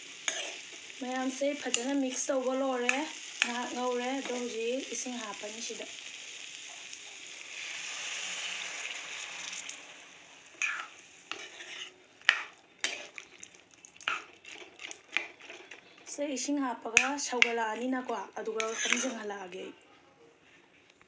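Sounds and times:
noodles sizzling in a pan: 0.0 - 19.6
steel spoon scraping a pan: 0.2 - 4.6, 10.5 - 16.2, 16.9 - 19.4.

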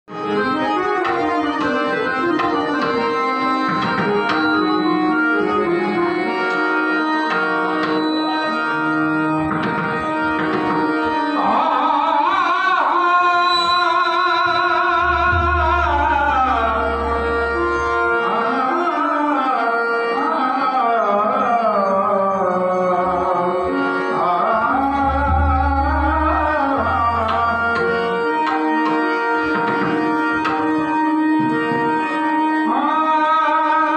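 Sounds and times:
harmonium: 0.0 - 33.9
hand drums: 9.5 - 11.0
man singing high voice: 11.4 - 28.2, 32.6 - 33.9.

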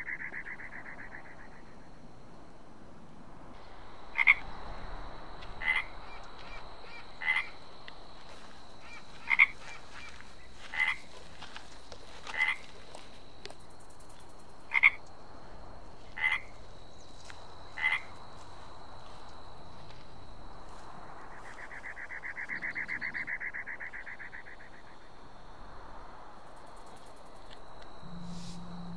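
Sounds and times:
frog croaking: 4.0 - 4.6, 5.4 - 7.6, 8.4 - 11.2, 12.2 - 12.8, 14.7 - 15.0, 16.1 - 16.6, 17.7 - 18.2, 21.3 - 25.2, 27.8 - 28.9.

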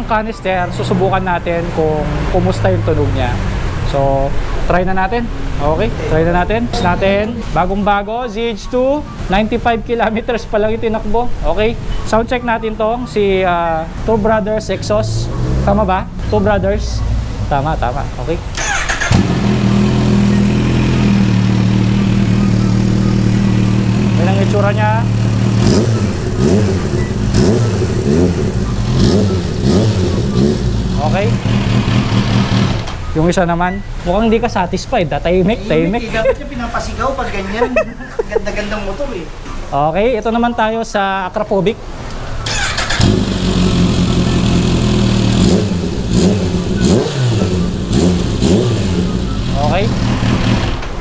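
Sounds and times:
motorcycle engine revving: 14.8 - 16.4, 18.5 - 33.0, 42.4 - 51.0
motorcycle engine idling: 18.6 - 32.8, 42.5 - 50.8.

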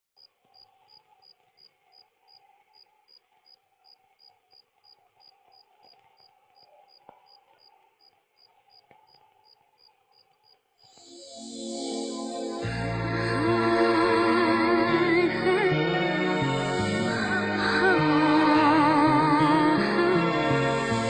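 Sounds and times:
cricket chirping: 0.2 - 11.6.

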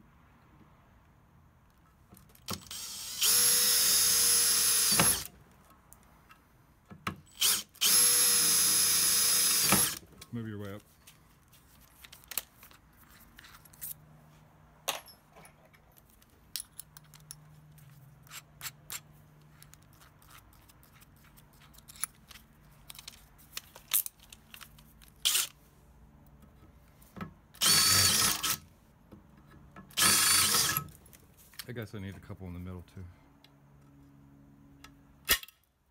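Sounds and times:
drill bit clinking: 2.5 - 5.3, 7.3 - 10.0, 27.6 - 28.6, 29.9 - 30.9
power drill boring into metal: 2.5 - 5.3, 7.3 - 10.0, 27.6 - 28.6, 29.9 - 30.9.

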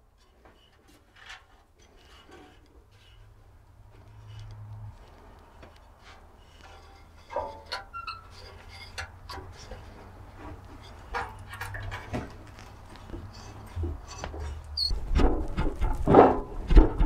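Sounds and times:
wooden shaft clicking and knocking: 4.0 - 17.0.

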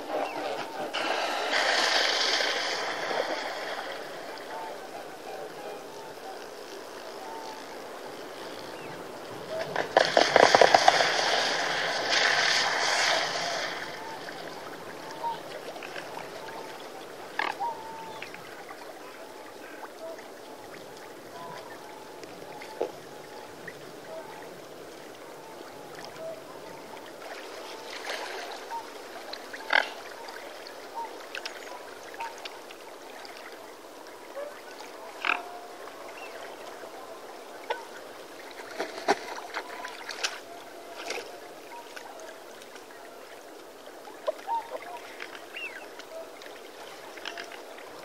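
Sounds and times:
swan calls: 0.0 - 47.8.

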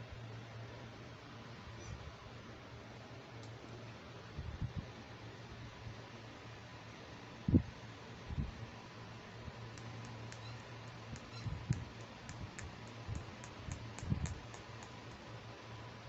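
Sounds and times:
quick light plastic clicks: 9.7 - 15.2.

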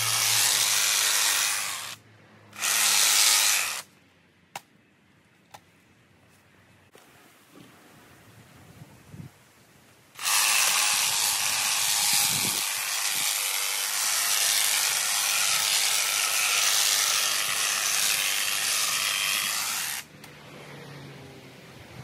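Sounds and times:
hedge trimmer cutting hedge: 0.0 - 3.9, 10.2 - 21.0.

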